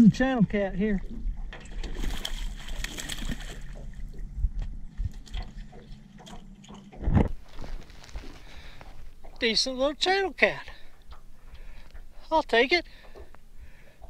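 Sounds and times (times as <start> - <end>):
low steady hum: 0.0 - 14.0
water lapping against boat hull: 0.0 - 14.0
knocks of handling in boat: 1.1 - 12.1.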